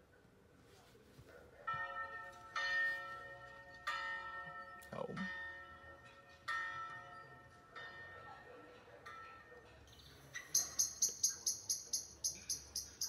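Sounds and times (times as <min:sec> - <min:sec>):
church bell strikes from speaker: 0:01.7 - 0:09.6.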